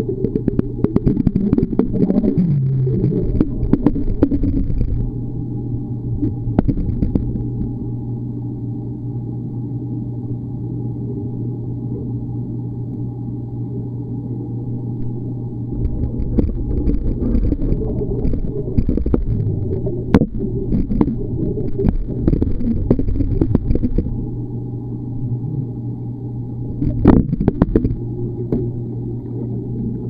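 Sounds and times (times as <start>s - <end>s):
churning bubbling water: 0.0s - 5.2s, 15.6s - 25.8s, 26.7s - 30.0s
underwater low hum: 0.0s - 30.0s
sharp underwater knocks: 26.8s - 28.7s.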